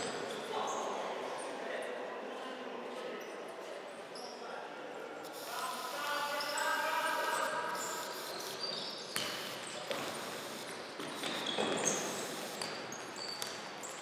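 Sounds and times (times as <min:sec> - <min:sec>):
shoes squeaking on wooden floor: 0:07.3 - 0:14.0.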